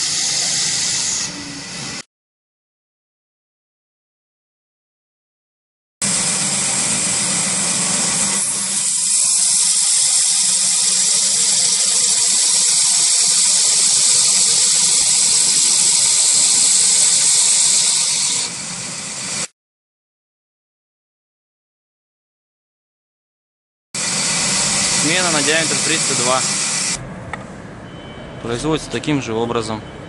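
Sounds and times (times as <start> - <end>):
sanding belt grinding wood: 6.0 - 19.5, 24.0 - 27.0.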